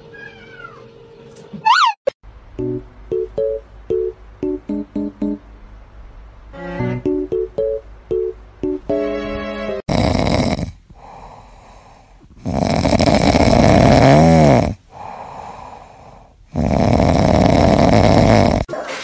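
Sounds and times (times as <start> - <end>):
cat snoring: 9.9 - 18.7
cat breathing: 10.9 - 12.5, 14.9 - 17.3.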